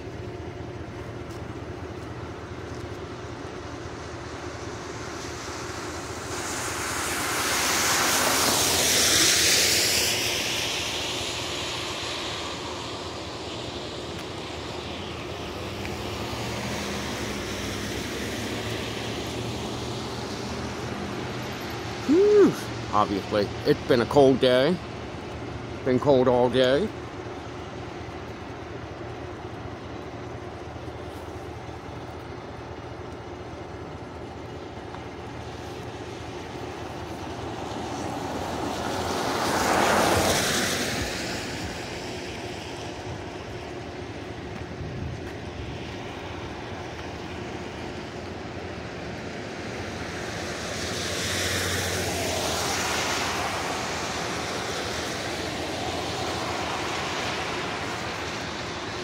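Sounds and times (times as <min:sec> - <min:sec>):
car tyres hissing on wet road: 0:00.0 - 0:59.0
traffic hum: 0:00.0 - 0:59.0.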